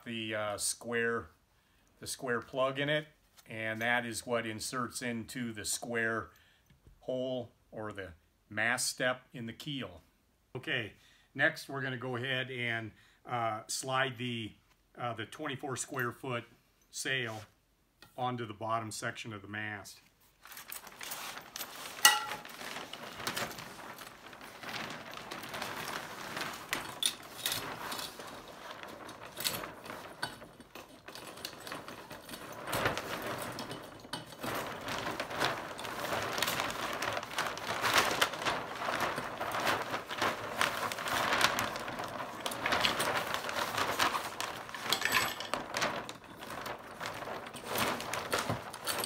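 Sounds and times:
sail cloth rustling and crinkling: 20.2s - 49.0s.

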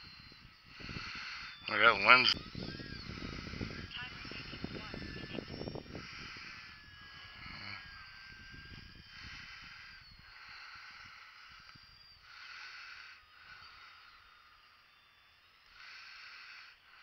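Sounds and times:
wind buffeting microphone: 0.0s - 12.2s
small electric motor whine: 0.0s - 17.0s.

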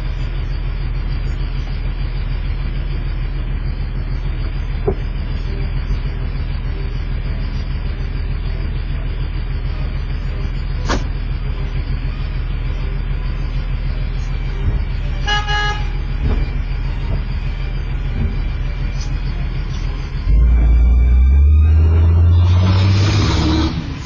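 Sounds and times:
street traffic rumble: 0.0s - 24.0s
vehicle horn honk: 15.2s - 16.2s.

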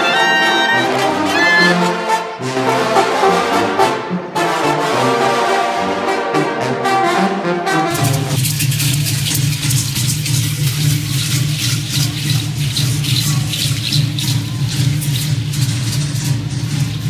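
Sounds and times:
brass band playing: 0.0s - 8.7s.

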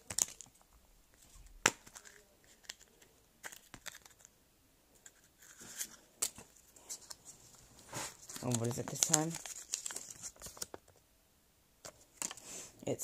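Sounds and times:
wrapper crinkling: 7.9s - 10.8s.

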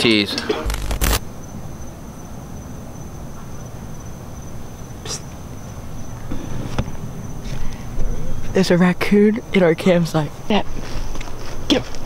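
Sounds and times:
sharp clicks: 0.6s - 1.2s
crickets trilling: 0.6s - 11.7s.

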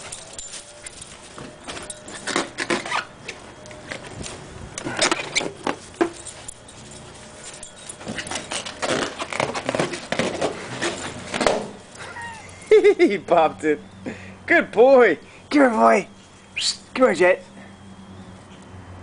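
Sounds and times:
rubbery balloon squeaks and scuffs: 1.4s - 4.2s, 8.0s - 11.8s.

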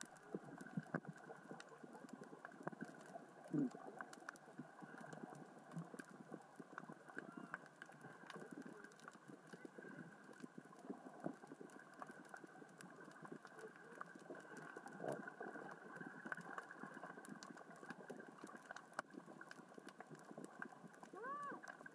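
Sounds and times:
underwater crackle of rolling rocks: 0.0s - 21.9s.

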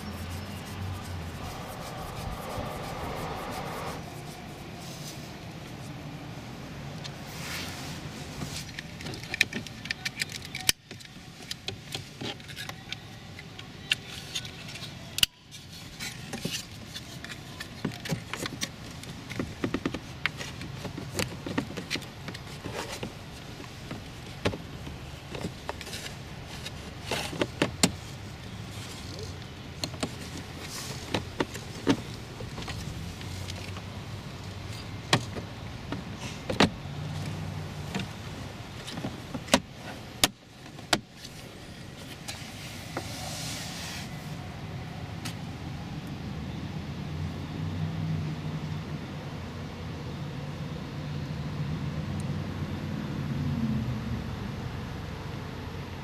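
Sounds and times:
steady low hum: 0.0s - 5.8s.

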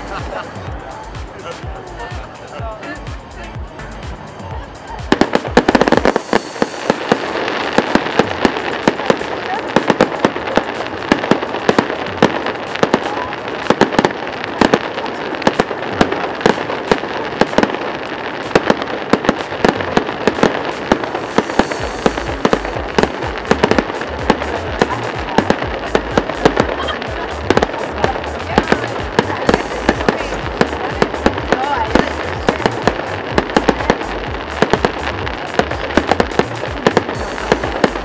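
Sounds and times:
fireworks bangs and crackling: 0.0s - 38.0s
deep low rumble: 21.8s - 38.0s.

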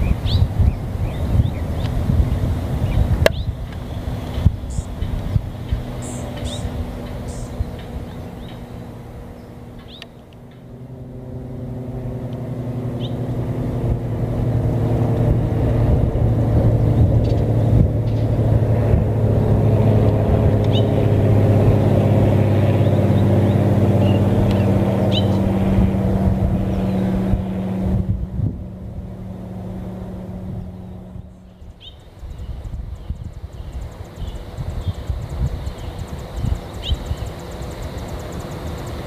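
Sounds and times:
bird chirps: 0.0s - 10.6s, 12.9s - 13.2s, 20.7s - 21.0s, 22.8s - 25.5s, 30.6s - 39.0s
motor engine running: 0.0s - 39.0s.

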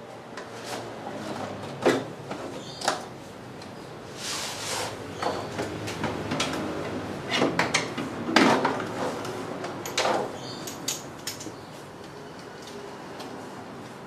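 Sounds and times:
hand tools clinking on metal: 9.8s - 11.6s.

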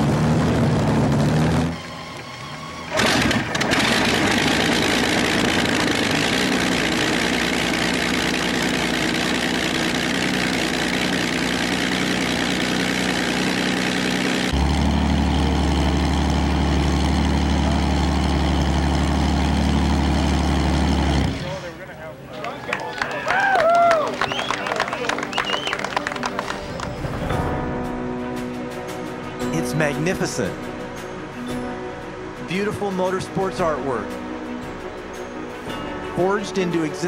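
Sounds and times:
engine deep steady rumble: 0.0s - 22.2s
aircraft engine running: 0.0s - 22.4s, 24.1s - 37.0s.

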